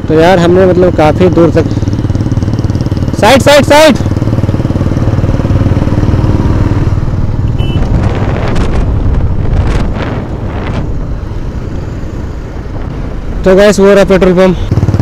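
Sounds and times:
motorcycle engine running: 0:00.0 - 0:15.0
short high beep: 0:07.5 - 0:07.9.

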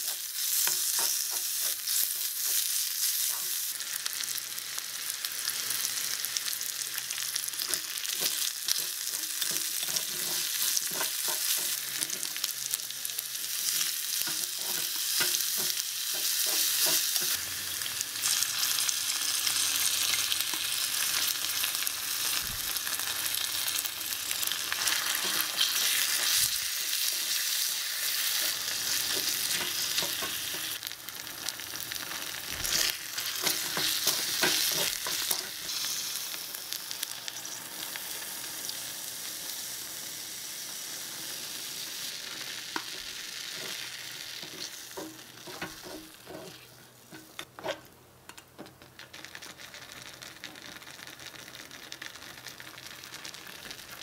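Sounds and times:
mushrooms sizzling in a wok: 0:00.0 - 0:54.0
wooden spatula scraping a pan: 0:07.7 - 0:12.3, 0:44.4 - 0:47.9.

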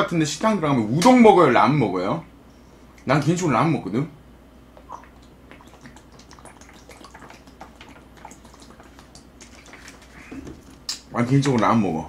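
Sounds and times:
person swallowing juice: 0:04.8 - 0:11.1
liquid clicks and drips: 0:04.8 - 0:11.6.

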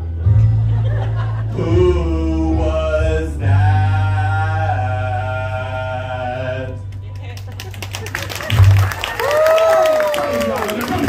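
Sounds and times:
voices holding sung notes: 0:01.6 - 0:06.8.

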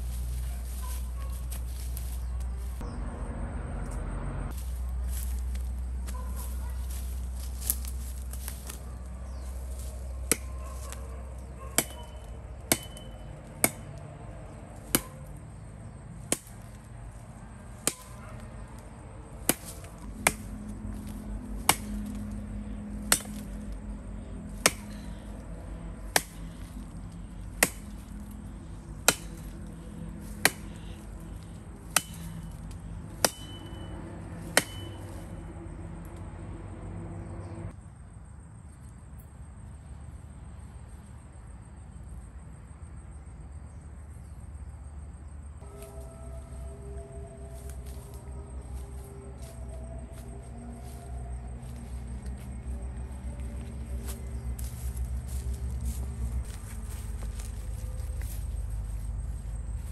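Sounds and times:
axe chopping firewood: 0:09.8 - 0:11.0, 0:11.8 - 0:14.2, 0:14.8 - 0:15.2, 0:16.2 - 0:16.8, 0:17.7 - 0:18.2, 0:19.3 - 0:23.8, 0:24.5 - 0:25.4, 0:26.0 - 0:35.2.

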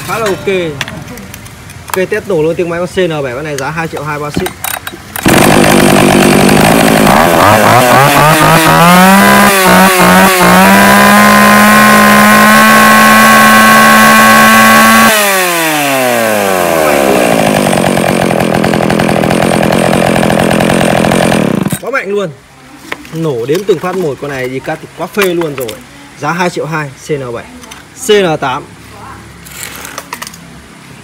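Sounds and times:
chainsaw revving and idling: 0:05.2 - 0:21.9.

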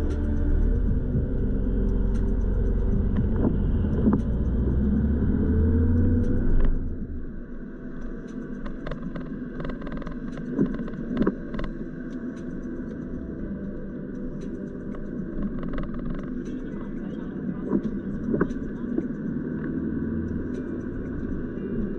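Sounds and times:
car engine and road rumble: 0:00.0 - 0:21.9
scattered clicks: 0:08.0 - 0:13.1.

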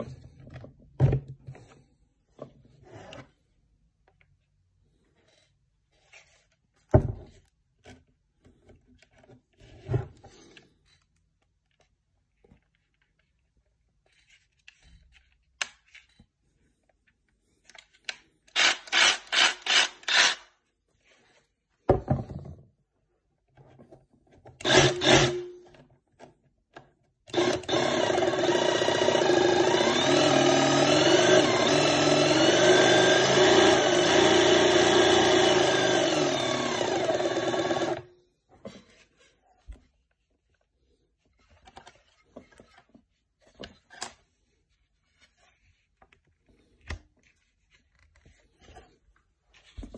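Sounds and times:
cordless tool motor running: 0:24.6 - 0:25.4, 0:27.3 - 0:38.1.

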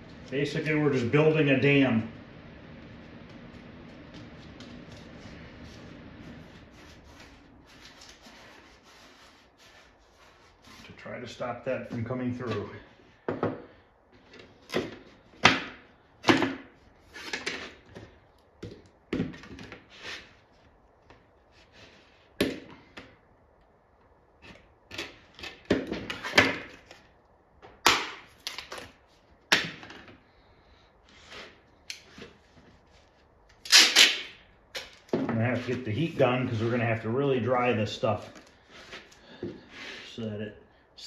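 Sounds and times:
objects knocking on wooden workbench: 0:13.3 - 0:13.6.

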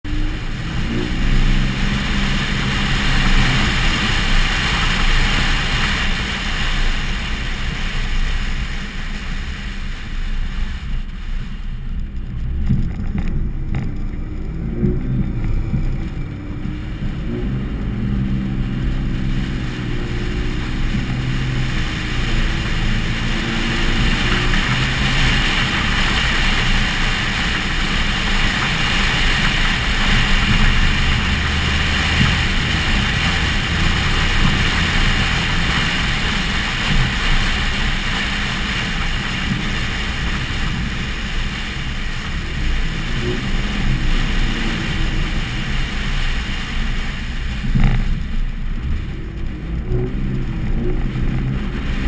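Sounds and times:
tyre noise on dirt road: 0:00.0 - 0:52.0
wind rush: 0:00.0 - 0:52.0
truck engine revving under load: 0:12.4 - 0:41.9.

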